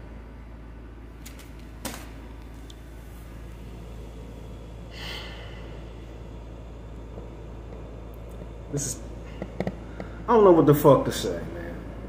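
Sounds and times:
low room hum: 0.0 - 12.0
man breathing out: 4.9 - 6.0.

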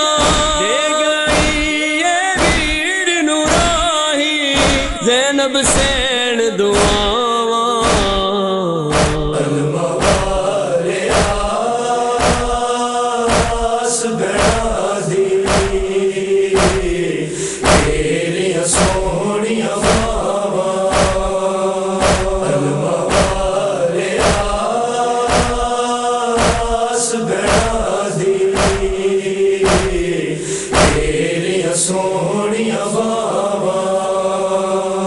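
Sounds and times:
men chanting in chorus: 0.0 - 35.0
hands striking chests: 0.2 - 0.6, 1.3 - 1.8, 2.4 - 2.8, 3.5 - 3.9, 4.6 - 5.0, 6.8 - 7.2, 7.8 - 8.3, 8.9 - 9.4, 10.0 - 10.4, 11.1 - 11.5, 12.2 - 12.6, 13.3 - 13.8, 14.4 - 14.8, 15.4 - 16.0, 16.6 - 17.0, 17.6 - 18.1, 18.7 - 19.1, 19.8 - 20.3, 20.9 - 21.3, 22.0 - 22.5, 23.1 - 23.6, 24.2 - 24.6, 25.3 - 25.7, 26.4 - 26.8, 27.5 - 27.9, 28.6 - 29.0, 29.6 - 30.1, 30.7 - 31.2.

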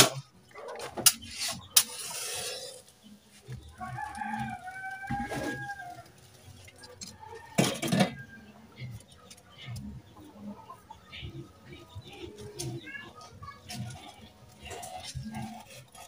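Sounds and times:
rooster crowing: 3.8 - 6.1.

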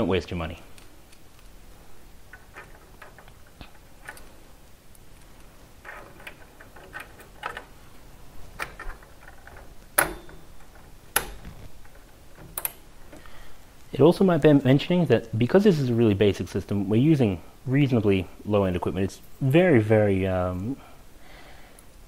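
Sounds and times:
hardware clicks and taps: 8.6 - 13.3.

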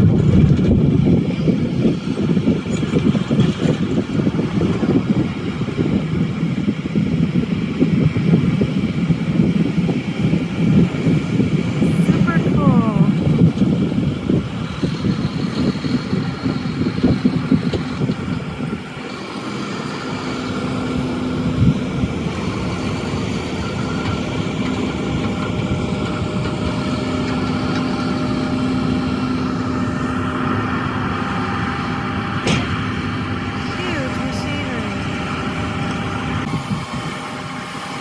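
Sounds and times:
tractor diesel engine driving past: 10.0 - 38.0.

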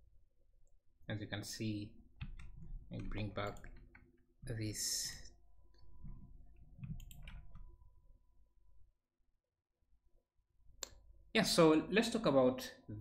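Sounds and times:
computer mouse clicks: 5.7 - 7.7.

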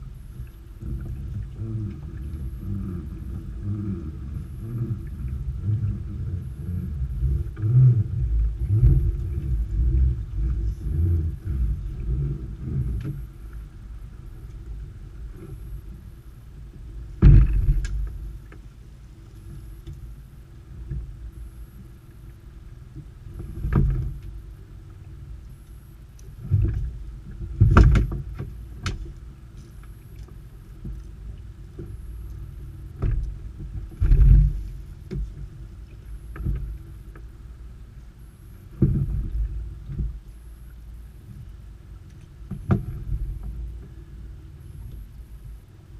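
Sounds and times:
low rumbling: 0.0 - 45.9
creel thumping against boat hull: 17.1 - 18.7, 22.9 - 24.4, 26.3 - 31.0, 32.8 - 35.6, 36.2 - 37.3, 38.7 - 40.2, 42.4 - 44.0.

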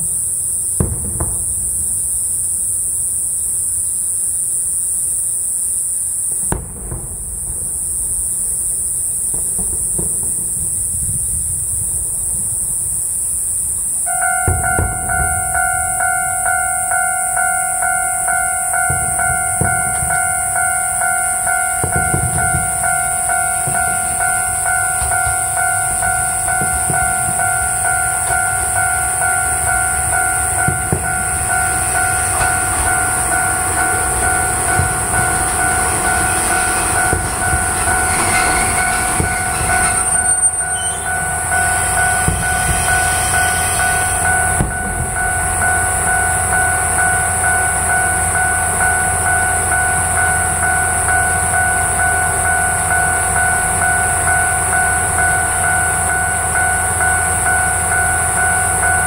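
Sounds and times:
train braking: 0.0 - 59.0
train wheels clattering over rail joints: 6.1 - 59.0
diesel engine idling: 14.0 - 59.0.

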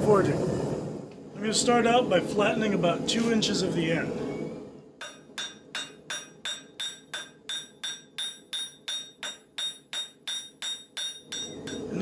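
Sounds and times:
hammer striking steel on an anvil: 5.0 - 12.0.

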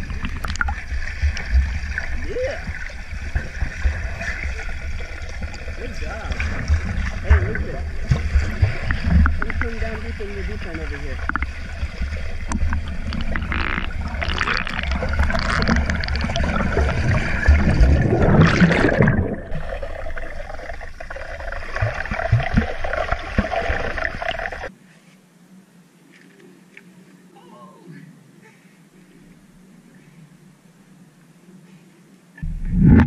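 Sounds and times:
underwater bubbling and splashing: 0.0 - 24.7, 32.4 - 33.0.

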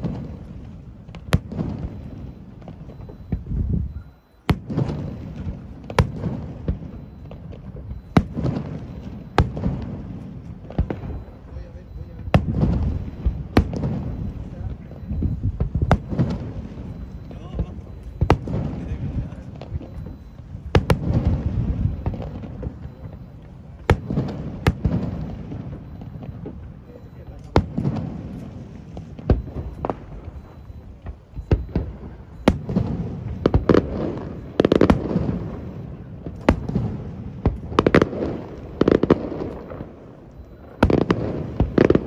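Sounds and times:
firework shells exploding: 0.0 - 42.0
small firework pops: 9.4 - 11.2, 27.3 - 35.4, 36.2 - 39.9, 40.5 - 42.0.

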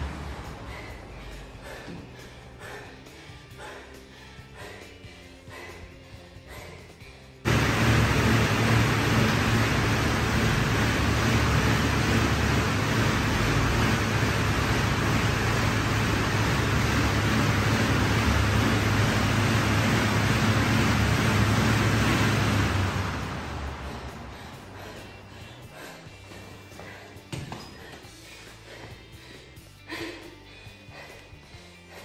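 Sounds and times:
low hum: 7.4 - 26.9
air bike fan whooshing: 7.5 - 27.0.

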